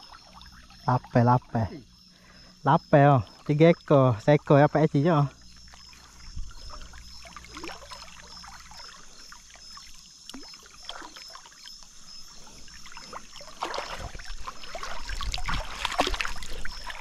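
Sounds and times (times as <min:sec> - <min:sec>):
river water splashing: 0:04.3 - 0:17.0.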